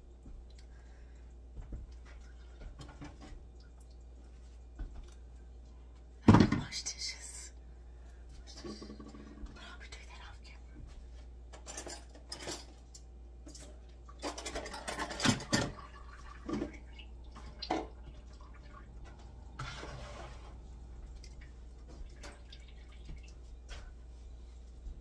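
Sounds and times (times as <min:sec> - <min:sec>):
tap water running: 0:13.6 - 0:23.9.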